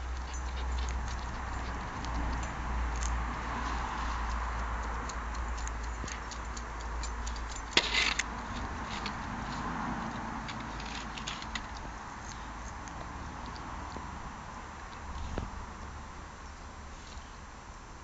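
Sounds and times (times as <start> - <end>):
light clicks and taps on concrete: 0.1 - 14.1.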